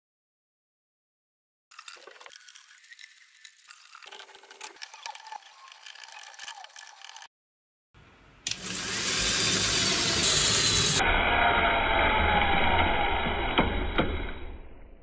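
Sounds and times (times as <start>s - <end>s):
plastic gears clicking: 1.7s - 7.3s, 8.5s - 11.0s
gear motor running: 4.0s - 7.3s, 8.5s - 13.9s.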